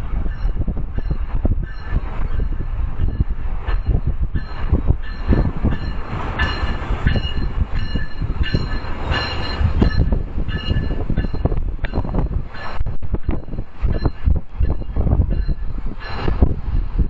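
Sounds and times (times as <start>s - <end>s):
train wheels clattering over rails: 0.2s - 17.0s
high wheel squeals: 0.3s - 12.8s.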